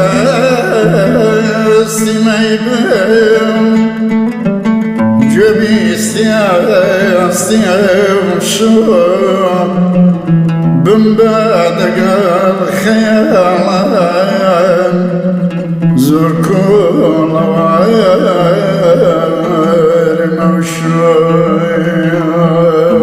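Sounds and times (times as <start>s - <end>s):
man singing ornamented melody: 0.0s - 23.0s
oud playing: 0.0s - 23.0s.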